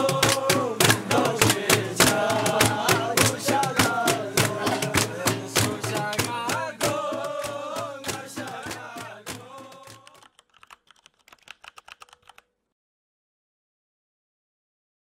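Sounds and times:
background music: 0.0s - 10.1s
keyboard typing clicks: 9.7s - 12.5s.

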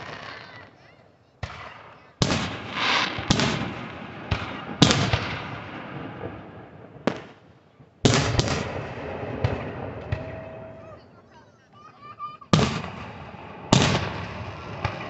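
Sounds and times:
fireworks bangs: 0.0s - 0.8s, 1.4s - 11.4s, 12.0s - 15.0s.

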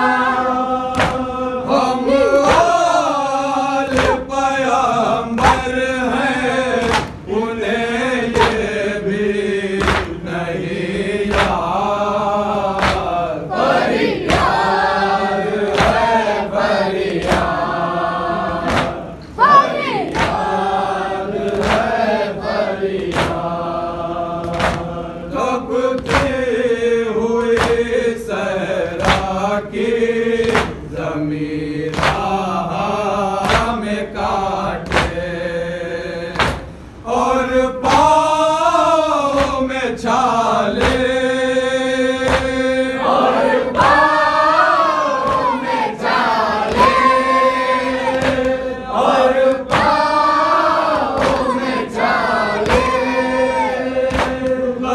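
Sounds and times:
men chanting together: 0.0s - 54.9s
hands slapping chests: 0.9s - 1.3s, 2.4s - 2.8s, 3.9s - 4.3s, 5.4s - 5.7s, 6.8s - 7.2s, 8.3s - 8.7s, 9.8s - 10.2s, 11.3s - 11.8s, 12.7s - 13.2s, 15.6s - 16.1s, 17.0s - 17.6s, 18.6s - 20.5s, 21.3s - 22.0s, 23.0s - 23.5s, 24.4s - 24.9s, 26.0s - 26.4s, 27.6s - 27.8s, 29.0s - 29.4s, 30.4s - 30.8s, 31.9s - 32.4s, 33.4s - 33.8s, 34.8s - 35.2s, 36.4s - 36.8s, 40.8s - 41.2s, 42.2s - 42.6s, 44.9s - 54.6s.

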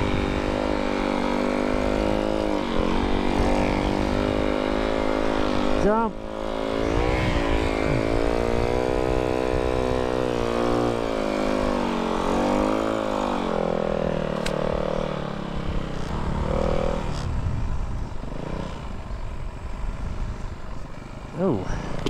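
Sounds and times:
snow bike engine revving: 0.0s - 20.2s.

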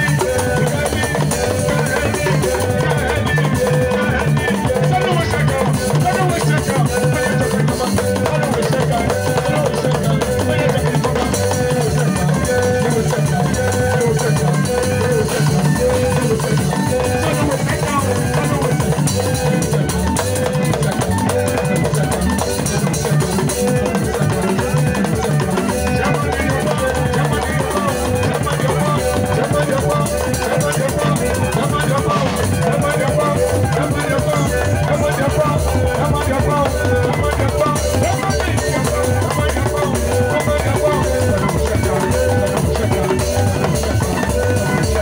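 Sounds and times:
drum kit steady beat: 0.0s - 45.0s.

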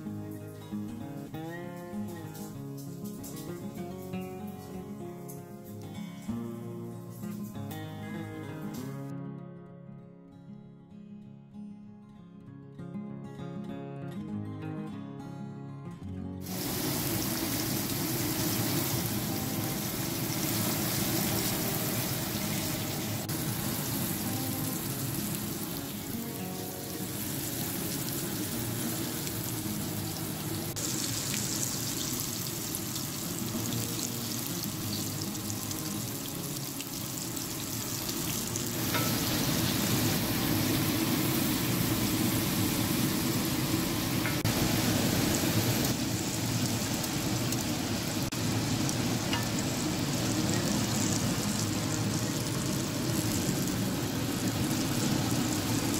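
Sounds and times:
oil sizzling in a skillet: 0.0s - 9.1s, 16.4s - 55.9s.

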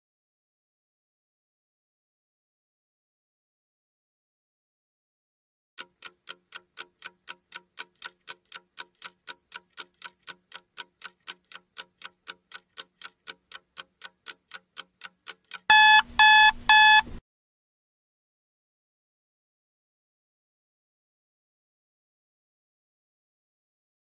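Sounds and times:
clock-like ticking: 5.8s - 17.1s
loud electronic beeps: 15.7s - 17.1s.

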